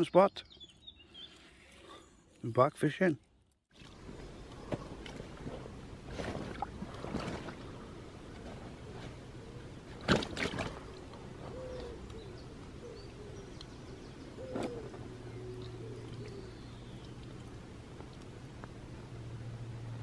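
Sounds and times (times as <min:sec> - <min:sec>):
pigeon cooing: 0:10.8 - 0:13.6, 0:14.4 - 0:16.6.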